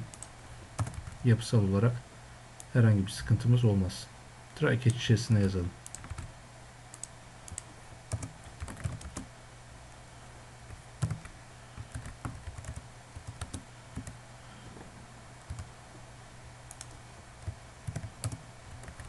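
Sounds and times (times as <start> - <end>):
low steady hum: 0.0 - 19.0
keyboard typing: 0.1 - 1.2, 5.8 - 6.3, 6.9 - 9.3, 11.0 - 14.2, 15.5 - 15.7, 16.7 - 19.0.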